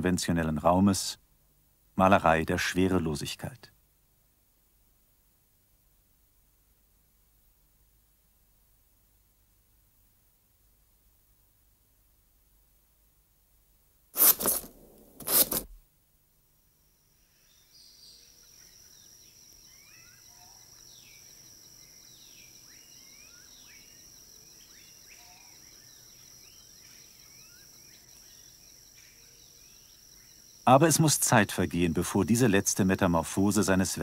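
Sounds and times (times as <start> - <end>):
insect drone: 16.4 - 34.0.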